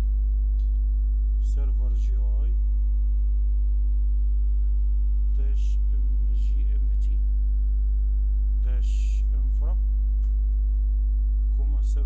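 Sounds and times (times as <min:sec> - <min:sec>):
electrical mains hum: 0:00.0 - 0:12.0
faint indistinct speech: 0:05.4 - 0:07.2, 0:08.6 - 0:09.8.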